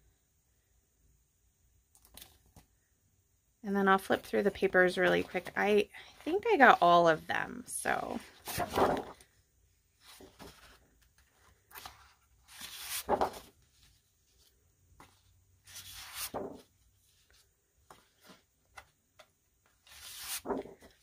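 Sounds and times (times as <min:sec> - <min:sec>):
paper sheets swishing: 0:08.4 - 0:09.2, 0:15.7 - 0:16.6, 0:19.9 - 0:20.9.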